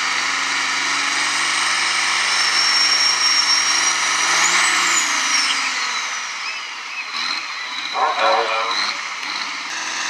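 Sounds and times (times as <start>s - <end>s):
tractor diesel engine under load: 0.0s - 10.0s
high whine: 7.9s - 9.0s.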